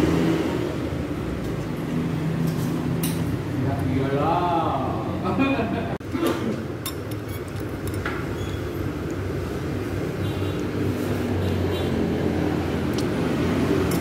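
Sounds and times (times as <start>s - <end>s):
metal spoon clinking ceramic bowl: 6.8s - 8.1s.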